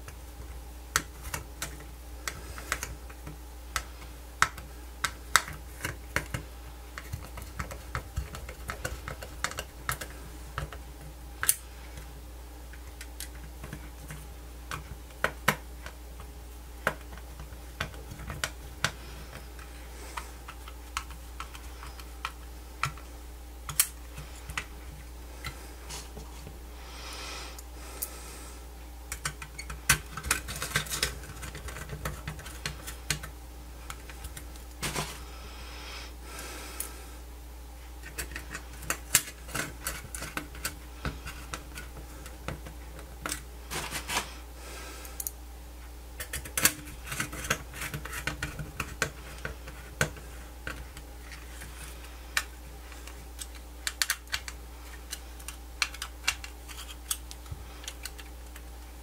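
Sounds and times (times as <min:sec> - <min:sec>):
steady low hum: 0:00.0 - 0:59.0
small tools clicking and scraping: 0:29.1 - 0:33.3, 0:38.0 - 0:44.3, 0:46.2 - 0:58.7.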